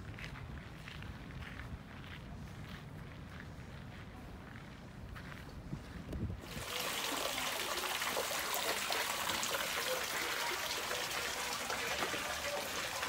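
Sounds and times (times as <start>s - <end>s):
water splashing into basin: 6.4s - 13.0s.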